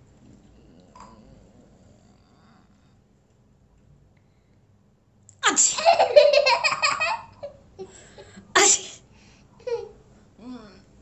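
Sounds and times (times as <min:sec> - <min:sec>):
person sneezing: 0:05.4 - 0:05.9, 0:08.6 - 0:09.0.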